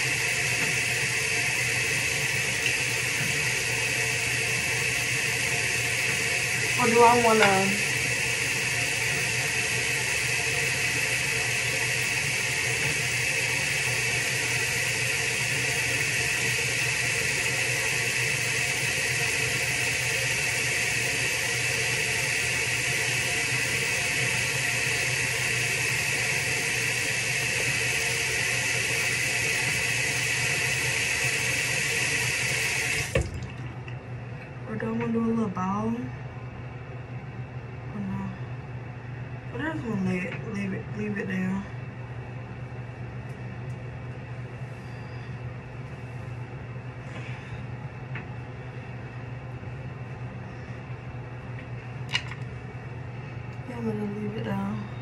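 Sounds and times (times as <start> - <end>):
hair dryer running: 0.0 - 33.6.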